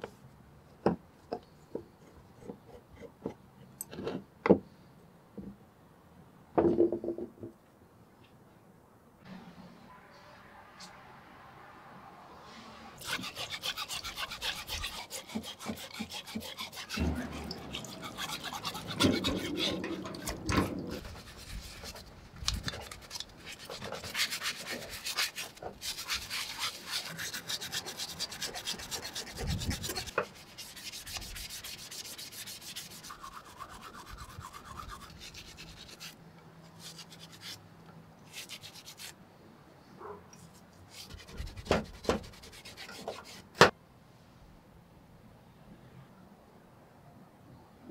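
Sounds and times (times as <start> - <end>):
brush scrubbing metal in water: 13.0 - 36.2, 40.9 - 43.6.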